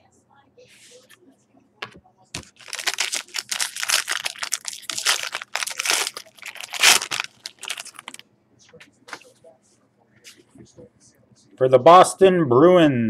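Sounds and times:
plastic card holder crinkling: 0:02.4 - 0:08.2.

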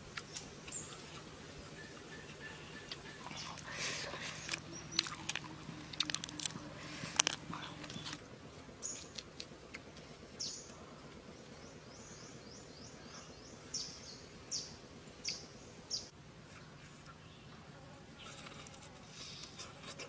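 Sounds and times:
faint outdoor background noise: 0:00.0 - 0:20.0
bird chirping: 0:00.3 - 0:08.2, 0:11.4 - 0:16.1.

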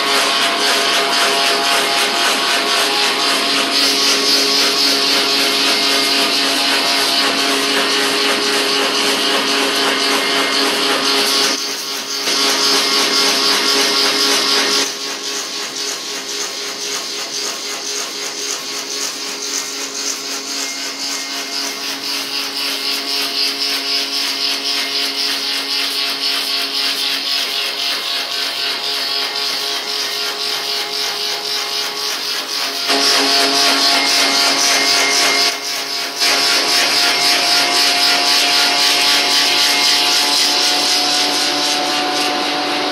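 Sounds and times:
woodworking machine motor hum: 0:00.0 - 0:42.9.

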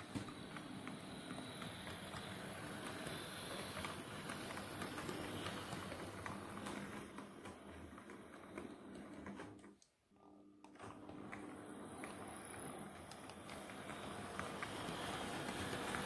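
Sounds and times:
model train motor hum: 0:00.6 - 0:07.0, 0:11.7 - 0:16.0.

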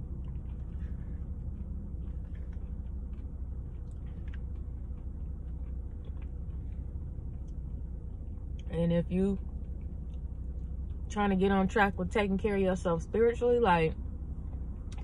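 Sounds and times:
chewing: 0:00.0 - 0:08.7, 0:09.4 - 0:11.1, 0:14.4 - 0:15.0
car interior engine rumble: 0:00.0 - 0:15.0.

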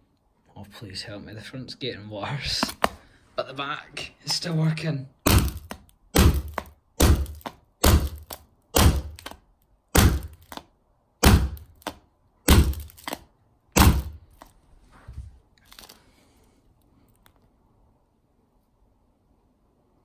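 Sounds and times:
hammer striking glass: 0:05.3 - 0:09.3, 0:10.0 - 0:10.6, 0:11.2 - 0:13.2, 0:13.8 - 0:14.2.

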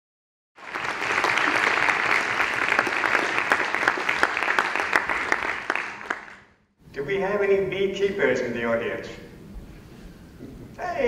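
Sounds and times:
audience applauding: 0:00.6 - 0:06.5.

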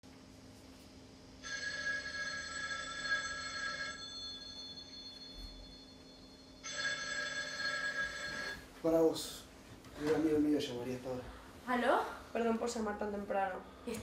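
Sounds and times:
telephone ringing: 0:01.4 - 0:08.8.

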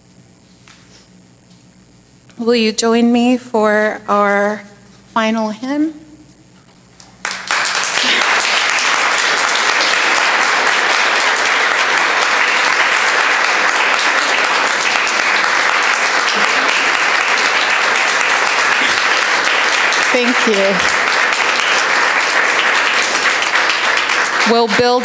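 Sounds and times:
congregation clapping: 0:07.0 - 0:25.0.

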